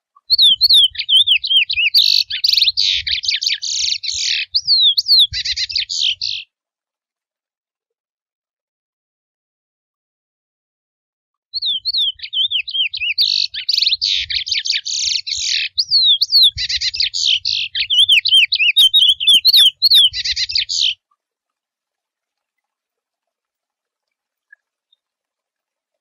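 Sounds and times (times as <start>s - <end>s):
finch singing: 0.3s - 6.4s, 11.6s - 21.0s.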